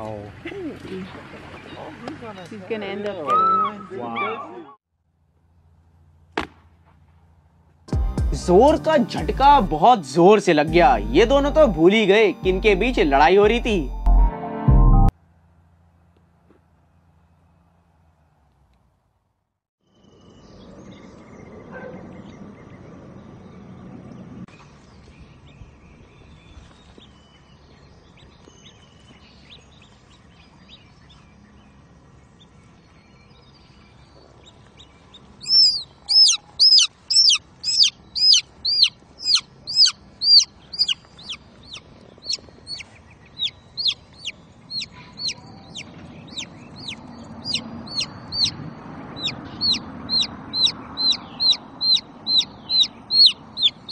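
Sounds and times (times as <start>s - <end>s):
baby chick peeping: 34.4s - 53.9s.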